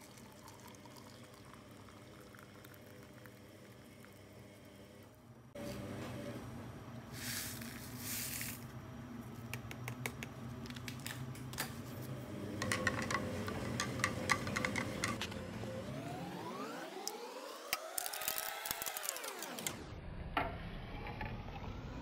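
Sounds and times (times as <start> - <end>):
coffee powder pouring hiss: 7.1 - 8.7
metal spoon tapping cup: 12.6 - 15.3.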